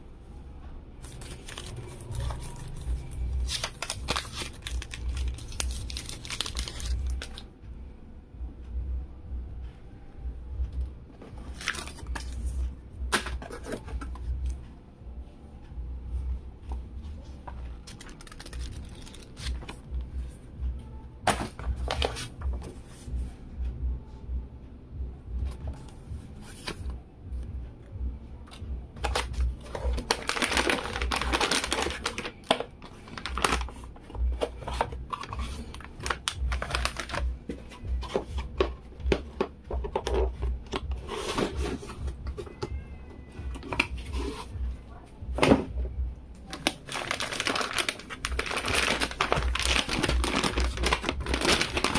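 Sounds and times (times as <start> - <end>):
paper and cardboard rustling: 1.0 - 7.4, 11.2 - 14.3, 21.3 - 23.1, 29.0 - 39.2, 40.9 - 42.6, 46.5 - 51.9.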